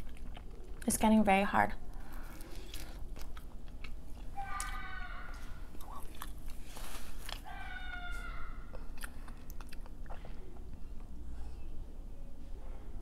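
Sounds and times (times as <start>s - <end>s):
chewing and biting food: 0.0s - 0.9s, 2.0s - 4.8s, 5.7s - 7.5s, 8.7s - 11.1s
child crying: 4.4s - 5.6s, 7.4s - 8.8s.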